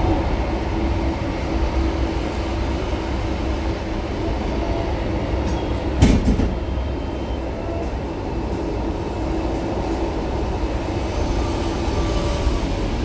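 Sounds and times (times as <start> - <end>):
tram wheels rumbling on rail: 0.0 - 13.0
sharp clunk: 6.0 - 6.6.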